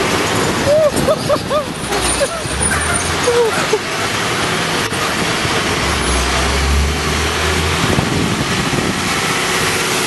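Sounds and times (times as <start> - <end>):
low vehicle rumble: 0.0 - 10.0
road noise rush: 0.0 - 10.0.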